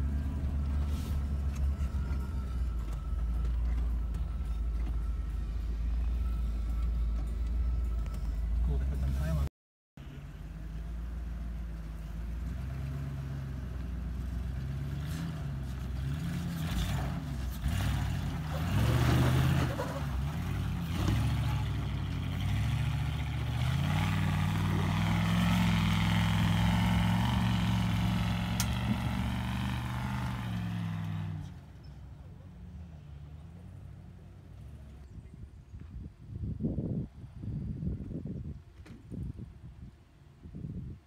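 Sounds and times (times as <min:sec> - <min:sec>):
truck engine revving: 0:12.3 - 0:31.7.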